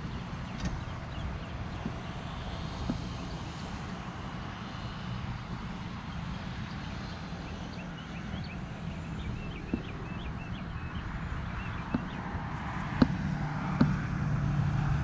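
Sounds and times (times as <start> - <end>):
bird chirping: 0.0 - 3.6, 6.0 - 12.7
low outdoor rumble: 0.0 - 15.0.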